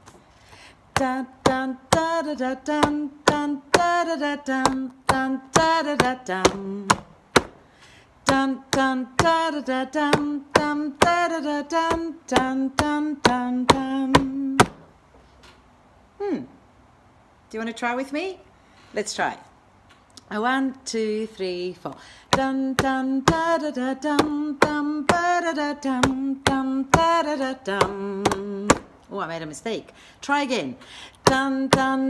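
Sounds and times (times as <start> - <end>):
woman singing wordless tune: 0.9 - 7.6, 8.2 - 14.9, 20.2 - 32.0.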